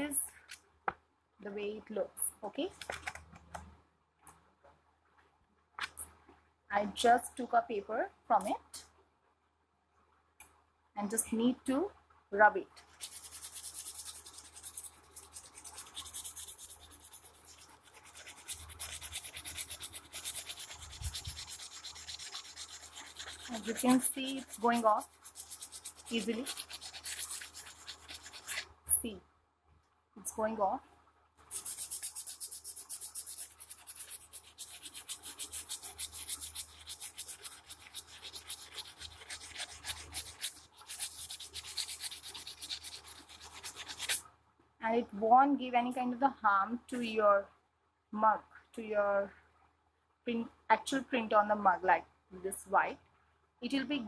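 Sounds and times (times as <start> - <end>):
sandpaper scratching on ceramic: 12.8 - 28.7, 31.4 - 44.2.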